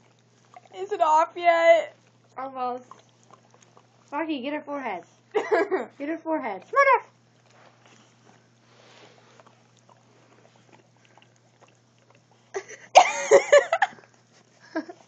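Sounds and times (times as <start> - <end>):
dog licking and smacking: 0.0 - 4.2, 6.4 - 12.9, 13.6 - 15.0
girl laughing: 5.4 - 5.9, 12.6 - 14.0, 14.6 - 15.0.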